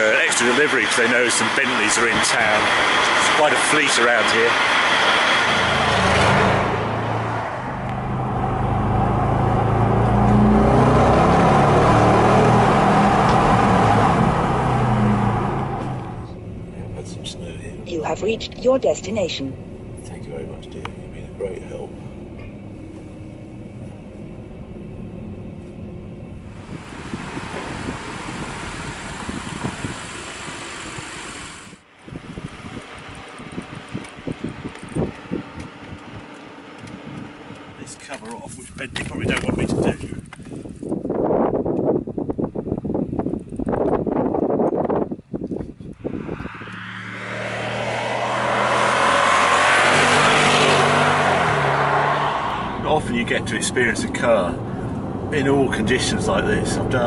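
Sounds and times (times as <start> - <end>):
car engine drone: 0.0 - 57.0
wind buffeting microphone: 26.2 - 31.2, 32.0 - 48.6.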